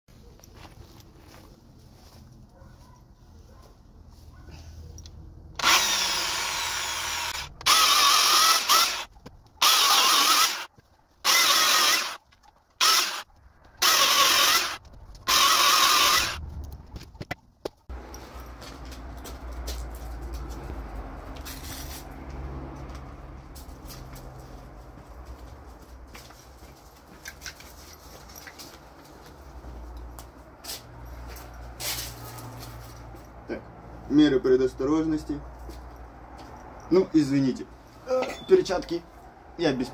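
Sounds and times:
footsteps scuffing on pavement: 0.1s - 4.5s, 16.8s - 33.2s, 35.6s - 36.7s
power tool cutting branches: 5.6s - 16.4s.

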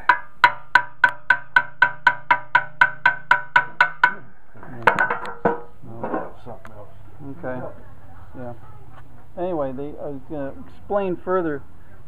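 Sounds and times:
hammer tapping on metal: 0.0s - 5.7s.

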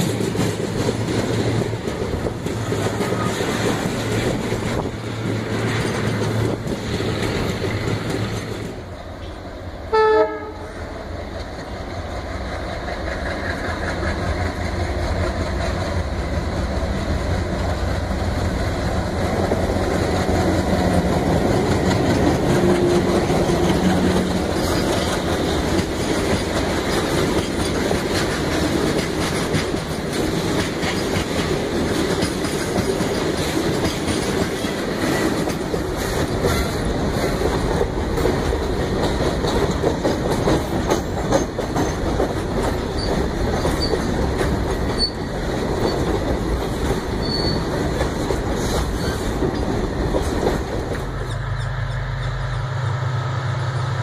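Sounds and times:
freight wagons rumbling and clattering: 0.0s - 8.9s, 14.5s - 51.4s
diesel locomotive engines: 0.0s - 54.0s
high wheel squeals: 47.2s - 47.7s, 51.1s - 52.6s.

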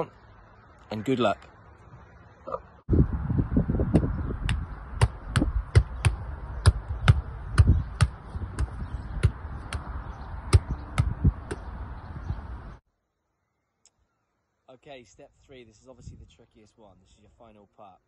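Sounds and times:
foot kicking football: 3.9s - 9.9s.

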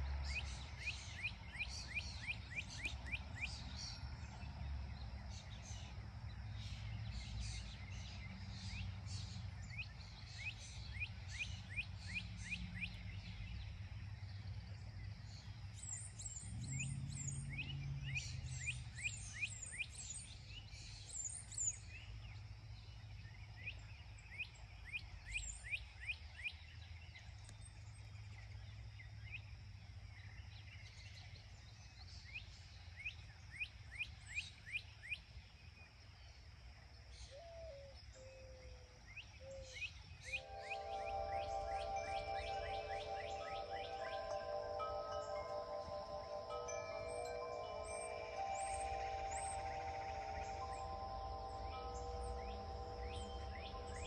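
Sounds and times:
bird whistling falling notes: 40.3s - 54.0s
low hum: 40.4s - 54.0s.

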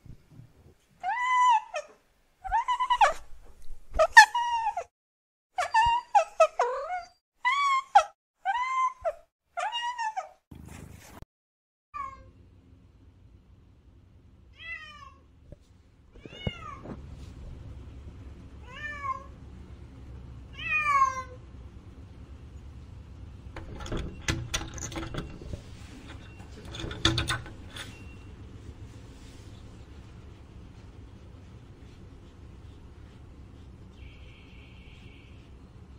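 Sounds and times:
clicks and knocks: 23.5s - 28.0s.

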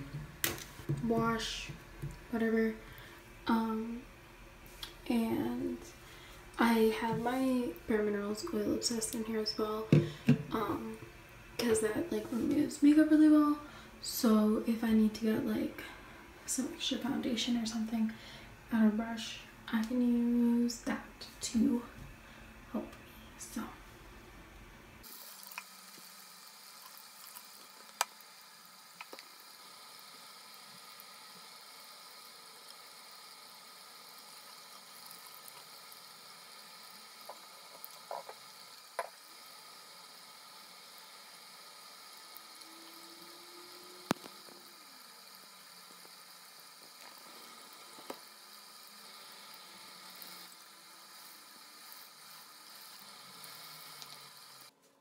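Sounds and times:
tap running: 0.0s - 3.1s, 7.0s - 7.9s, 9.0s - 11.8s, 29.0s - 29.9s, 34.0s - 54.7s.

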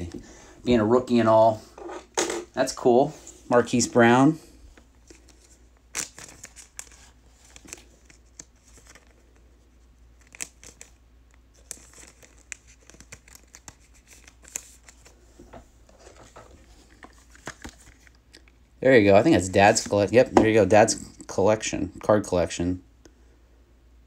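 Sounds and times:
plastic sleeve crinkling: 5.0s - 9.6s, 10.2s - 15.2s.

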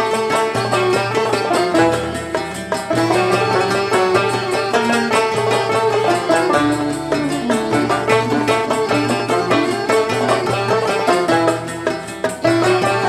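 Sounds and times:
banjos: 0.0s - 13.0s
hand-drum rhythm: 0.0s - 13.0s
mandole plucked: 0.0s - 13.0s
keyboard: 2.0s - 13.0s.

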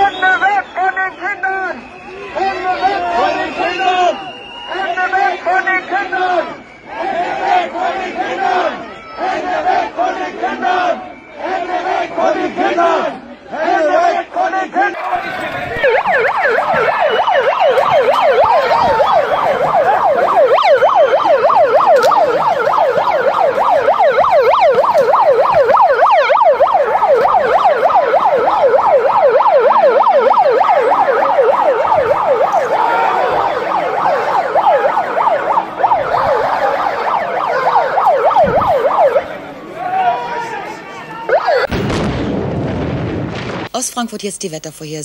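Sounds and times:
electronic siren yelping: 15.0s - 39.4s, 41.2s - 41.8s.

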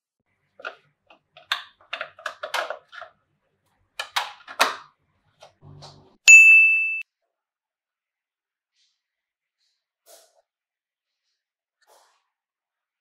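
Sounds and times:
loud ding sound effect: 6.3s - 7.0s.

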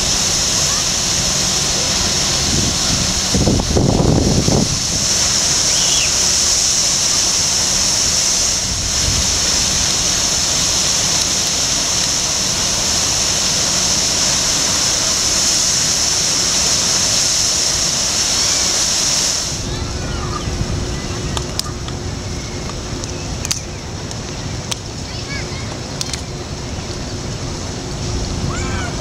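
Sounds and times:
fountain water splashing: 0.0s - 29.0s.

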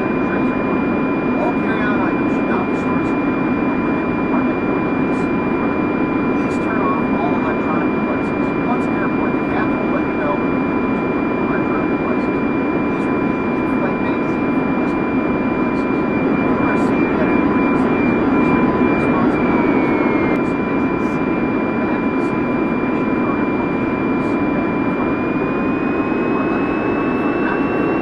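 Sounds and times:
drone motors whining: 16.1s - 20.4s.

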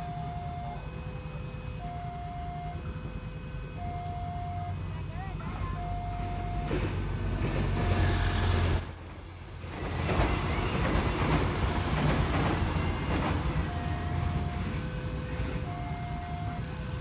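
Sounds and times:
level-crossing warning tone: 0.0s - 17.0s
train rumbling over rails: 4.7s - 17.0s.

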